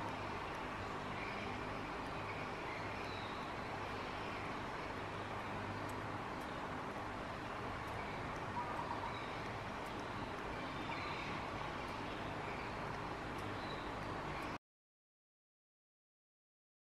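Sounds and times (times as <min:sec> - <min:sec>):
low hum and hiss: 0:00.0 - 0:14.6
small clicks: 0:04.2 - 0:14.6.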